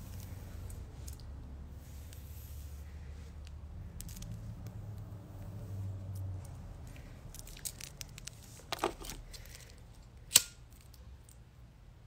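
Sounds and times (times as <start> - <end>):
phone handling rustles and taps: 7.4 - 9.4.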